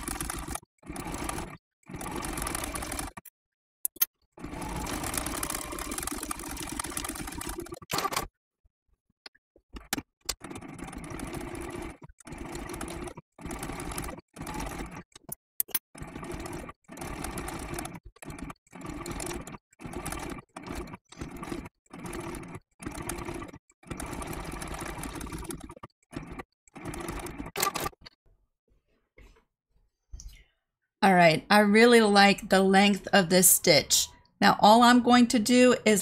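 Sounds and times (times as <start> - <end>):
sewing machine stitching: 0.0 - 3.3, 4.4 - 8.3, 9.8 - 28.1.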